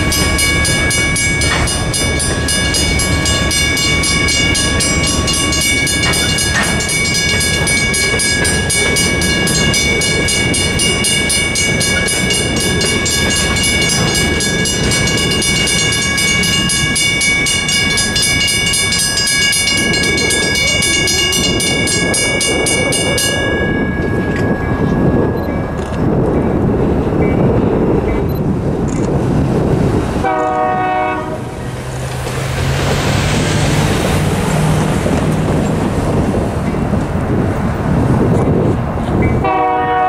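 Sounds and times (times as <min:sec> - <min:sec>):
mechanical crossing bells ringing: 0:00.0 - 0:26.3
freight cars rumbling: 0:00.0 - 0:40.0.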